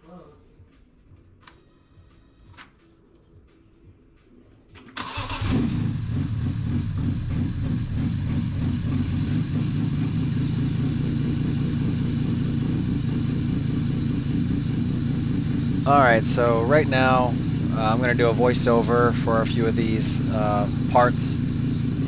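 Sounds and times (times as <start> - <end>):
car engine cranking: 4.8 - 22.0
car engine idling: 5.0 - 22.0.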